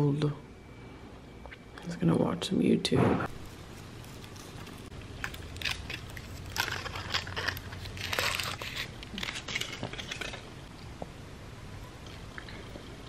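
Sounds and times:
foil wrapper crinkling: 3.3 - 10.5.

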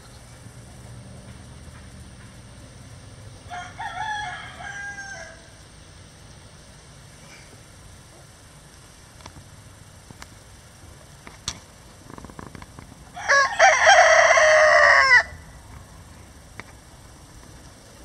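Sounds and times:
rooster crowing: 3.4 - 5.6, 13.1 - 15.6.

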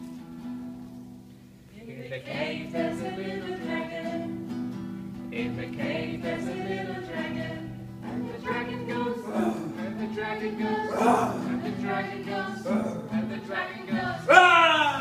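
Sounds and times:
people singing: 1.8 - 15.0
acoustic guitar strummed: 2.3 - 15.0.

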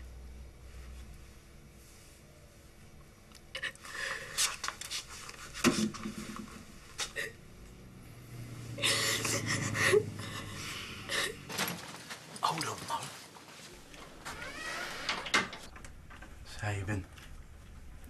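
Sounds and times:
woman sobbing: 8.8 - 11.5.

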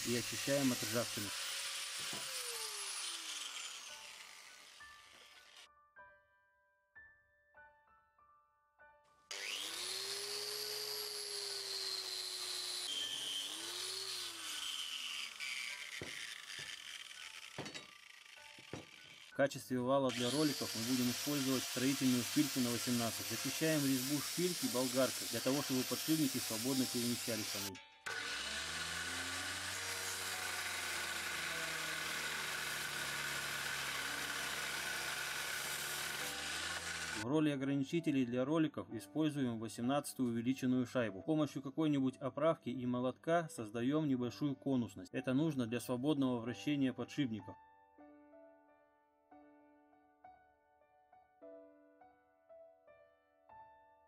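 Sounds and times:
angle grinder wire brush on steel: 0.0 - 5.6, 9.3 - 19.4, 20.1 - 37.2
knocks: 17.6 - 17.9, 18.6 - 19.0.

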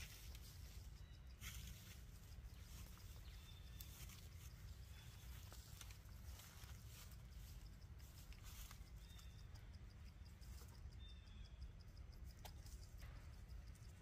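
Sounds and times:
faint bird calls: 0.0 - 14.0
insect ticking: 0.0 - 14.0.

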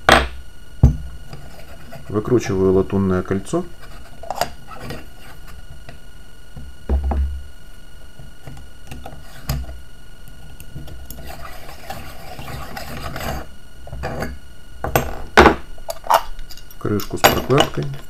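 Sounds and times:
gritty rubbing of threaded ring: 11.2 - 13.5.

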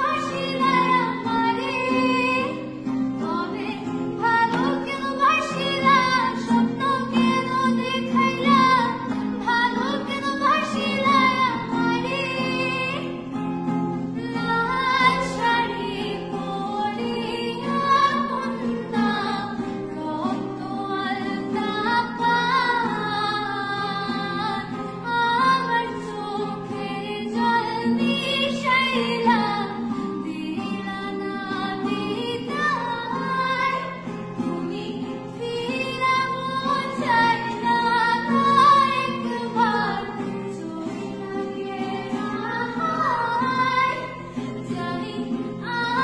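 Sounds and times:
acoustic guitar: 0.0 - 46.0
woman singing: 0.0 - 46.0.

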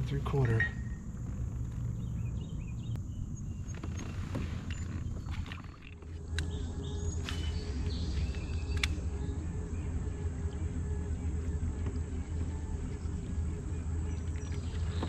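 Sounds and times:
faint high whine: 0.0 - 15.0
low rumble: 0.0 - 15.0
sharp clicks: 8.3 - 9.0.

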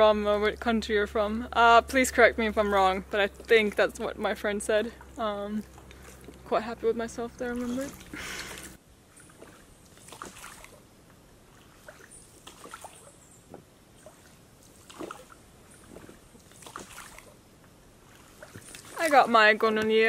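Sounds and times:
water trickling and dripping: 0.1 - 20.0
paddle strokes in water: 5.0 - 6.5, 7.6 - 19.8.

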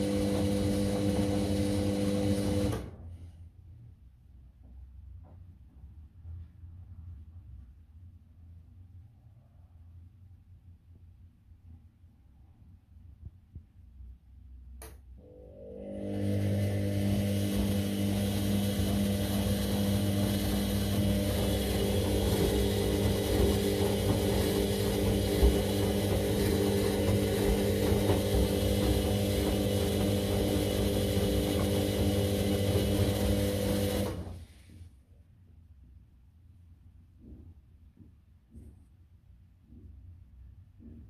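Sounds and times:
drum motor humming: 16.3 - 34.2.

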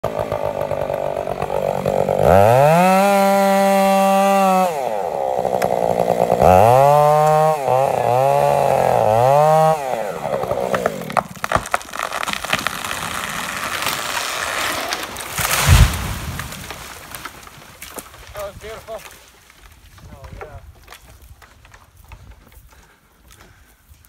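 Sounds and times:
chainsaw revving and idling: 0.0 - 16.9.

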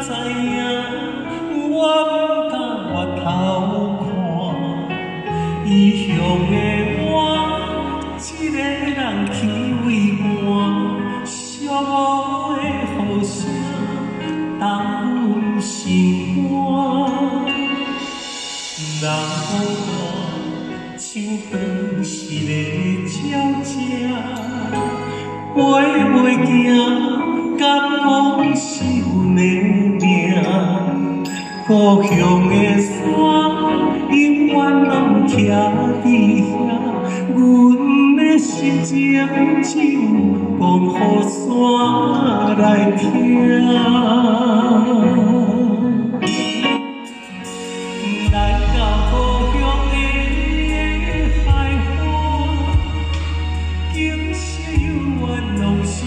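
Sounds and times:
man singing a ballad: 0.0 - 56.0
band accompaniment: 16.0 - 27.0, 46.2 - 56.0.

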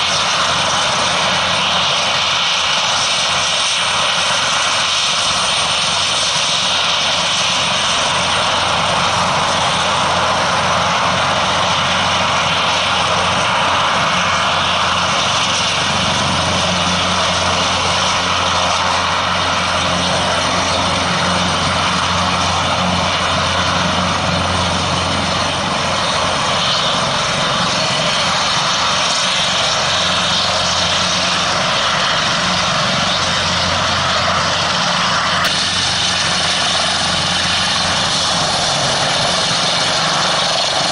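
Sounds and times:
helicopter engine whine: 0.0 - 40.9
rotor rushing: 12.7 - 40.9.

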